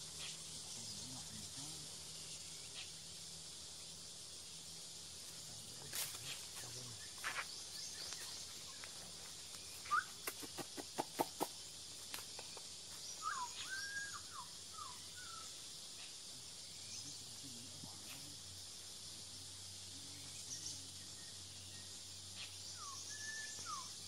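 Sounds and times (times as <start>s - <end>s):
high insect drone: 0.0s - 24.0s
bird whistling gliding notes: 9.7s - 10.2s, 13.1s - 15.5s, 22.7s - 24.0s.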